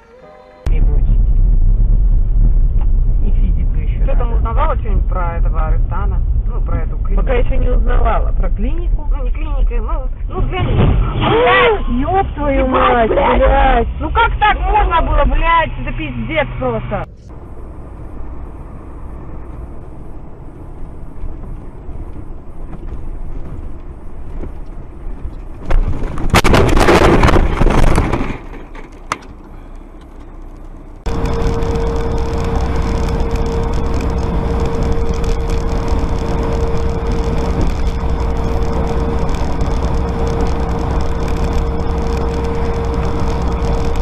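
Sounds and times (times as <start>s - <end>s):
constant hum: 0.0s - 44.0s
vehicle road noise: 0.0s - 44.0s
loud crash: 25.6s - 28.9s.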